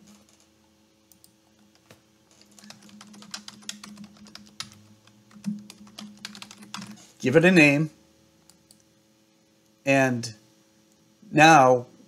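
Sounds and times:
faint steady hum: 0:00.0 - 0:12.0
typing on a computer keyboard: 0:01.1 - 0:07.0.

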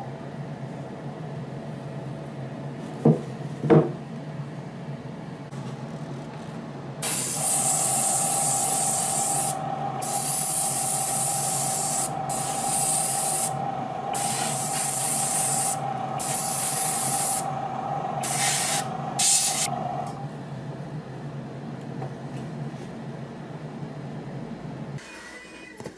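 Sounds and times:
spray paint hissing: 0:07.0 - 0:17.5, 0:18.2 - 0:19.7.

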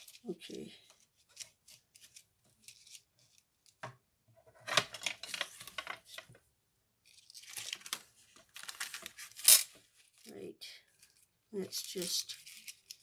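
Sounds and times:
paper rustling: 0:00.9 - 0:03.4, 0:04.6 - 0:06.2, 0:07.1 - 0:10.3, 0:10.9 - 0:13.0.

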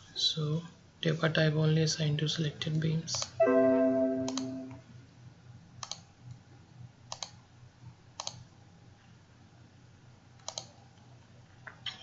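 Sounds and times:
computer mouse clicking: 0:05.8 - 0:06.0, 0:07.1 - 0:07.4, 0:08.2 - 0:08.4, 0:10.4 - 0:10.7.

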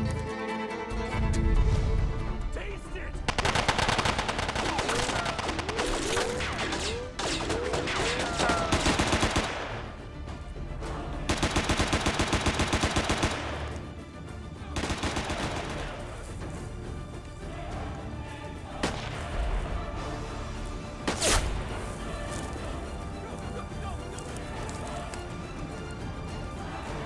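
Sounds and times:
automatic rifle fire: 0:03.3 - 0:05.7.

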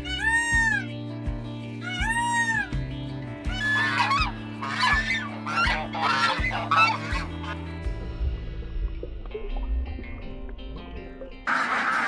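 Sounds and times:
peacock wailing call: 0:00.0 - 0:00.8, 0:01.8 - 0:02.7, 0:03.5 - 0:07.6
background music: 0:00.0 - 0:12.0
goose honks: 0:03.5 - 0:07.6.

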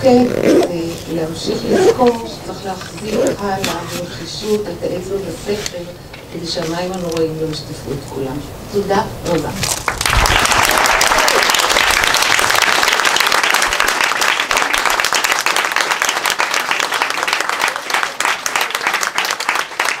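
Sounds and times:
audience applauding: 0:09.8 - 0:20.0.

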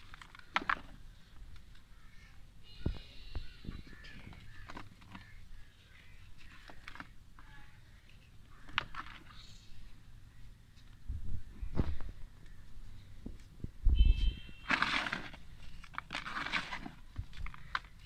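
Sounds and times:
dirt crumbling by hand: 0:14.6 - 0:18.0.

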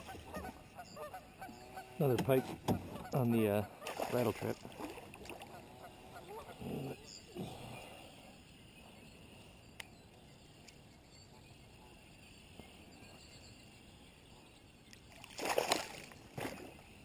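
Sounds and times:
faint water noise: 0:00.0 - 0:17.0
fish splashing at surface: 0:15.2 - 0:16.6.

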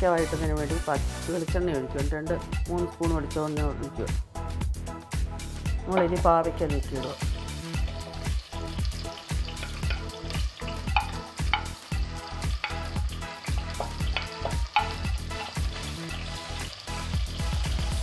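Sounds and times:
vegetables sizzling in hot oil: 0:06.0 - 0:18.0.

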